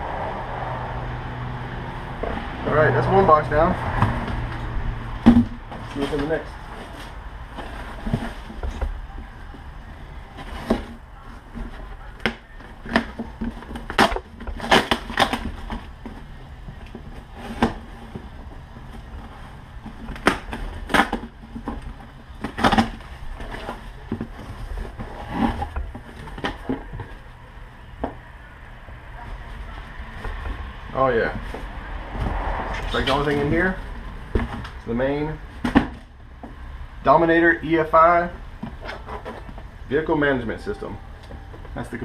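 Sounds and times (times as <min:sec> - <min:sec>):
cardboard box being torn open: 0:12.2 - 0:15.9.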